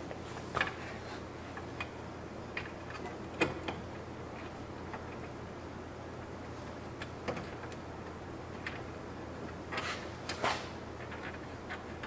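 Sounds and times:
steady low hum: 0.0s - 12.0s
scraping rustling noises: 9.7s - 12.0s.

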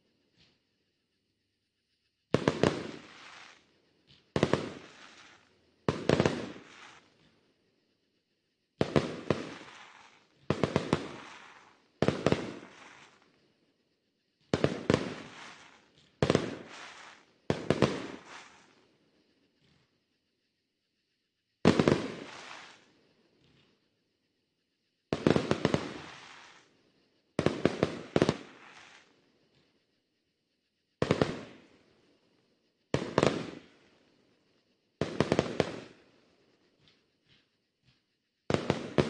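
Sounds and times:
fireworks booming: 2.3s - 3.6s, 4.3s - 7.1s, 8.8s - 13.2s, 14.5s - 18.7s, 21.6s - 22.9s, 25.1s - 26.7s, 27.4s - 29.0s, 31.0s - 31.7s, 32.9s - 33.8s, 35.0s - 36.0s, 37.9s - 39.0s.

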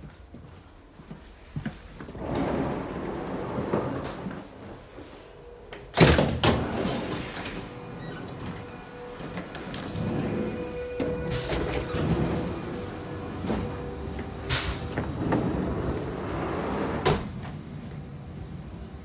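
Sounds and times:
sliding door opening: 2.1s - 5.1s, 5.8s - 17.9s.

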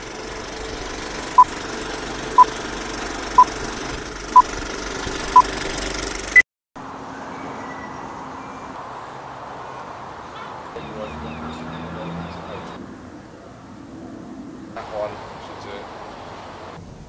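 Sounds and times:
mechanical running noise: 0.0s - 6.4s.

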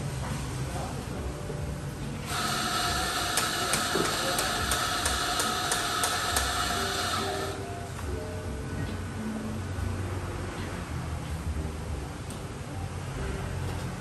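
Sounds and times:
electric coffee grinder whirring: 2.3s - 7.6s.

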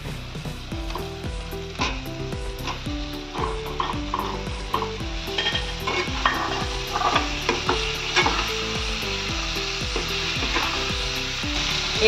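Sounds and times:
spices sizzling in a wok: 0.0s - 12.0s
spatula scraping a pan: 3.4s - 8.8s, 9.9s - 10.9s.

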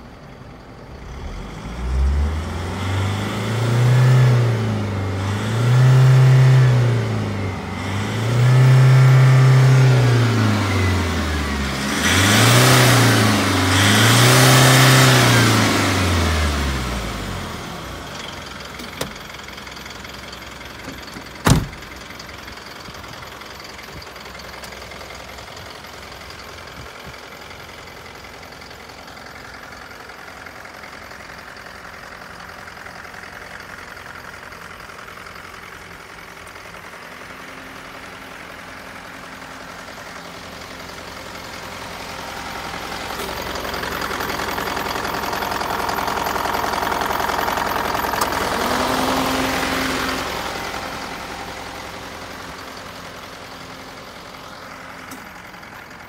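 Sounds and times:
truck engine idling: 15.6s - 56.0s.

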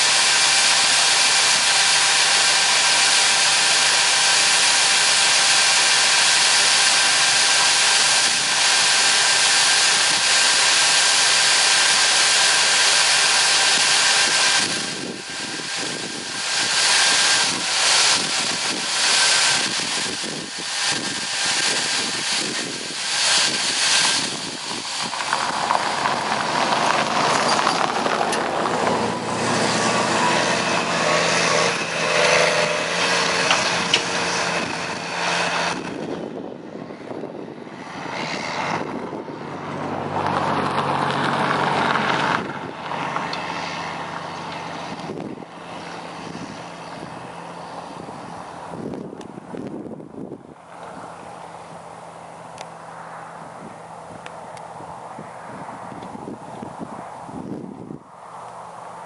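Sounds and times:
rushing hiss: 0.0s - 36.0s
tractor diesel engine running: 0.0s - 59.0s.

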